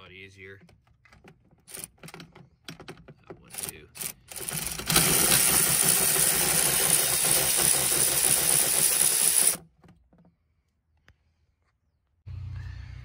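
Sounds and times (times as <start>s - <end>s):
cordless ratchet motor running: 3.5s - 9.6s.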